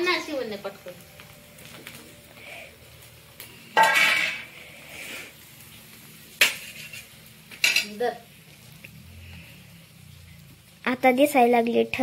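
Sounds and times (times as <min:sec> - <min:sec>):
metal utensils clattering: 0:03.8 - 0:04.5, 0:06.4 - 0:08.0.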